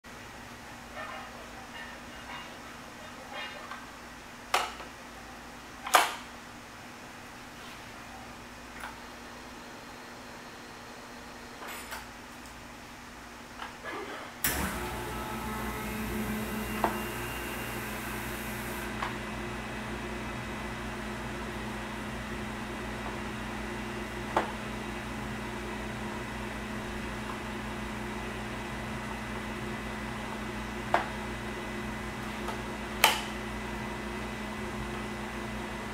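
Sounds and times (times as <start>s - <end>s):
machine hum: 14.4s - 35.9s.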